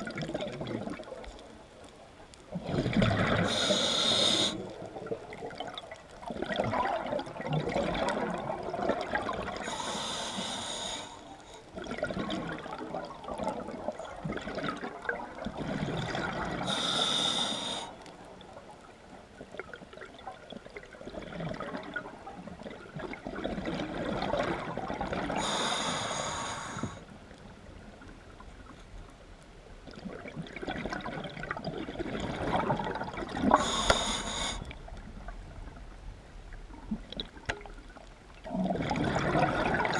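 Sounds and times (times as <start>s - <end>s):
underwater bubbling: 0.0s - 39.9s
regulator breath hiss: 3.5s - 4.6s, 9.6s - 11.4s, 16.7s - 18.0s, 25.4s - 27.0s, 33.6s - 34.7s.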